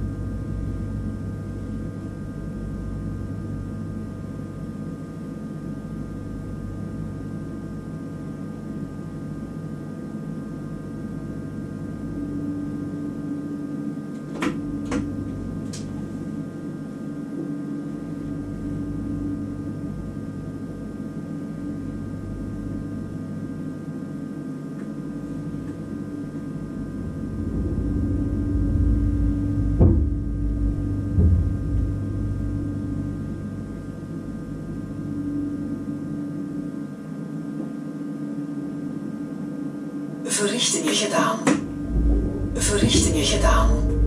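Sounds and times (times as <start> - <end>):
low rumble: 0.0 - 2.9, 25.0 - 34.6, 41.6 - 44.0
knock: 29.8 - 30.2
train equipment humming: 40.6 - 44.0.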